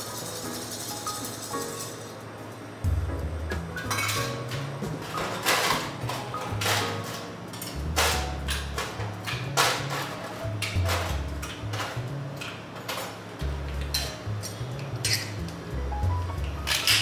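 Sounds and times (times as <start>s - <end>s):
background music with bass line: 2.9s - 6.7s, 7.8s - 12.4s, 13.4s - 16.7s.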